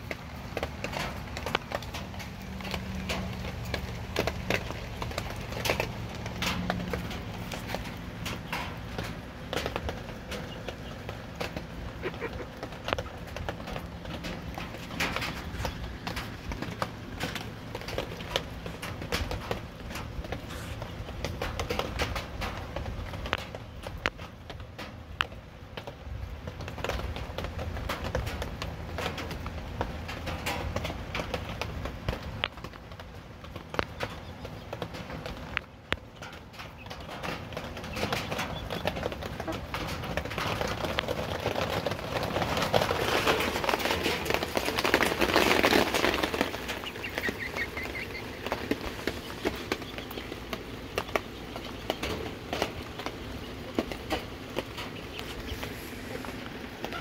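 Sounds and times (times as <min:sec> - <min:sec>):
chickens pecking sharp taps: 0:00.0 - 0:57.0.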